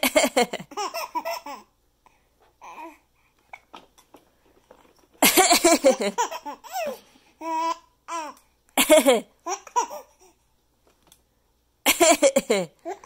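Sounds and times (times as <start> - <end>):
baby laughing: 0.0 - 1.7, 5.2 - 10.3.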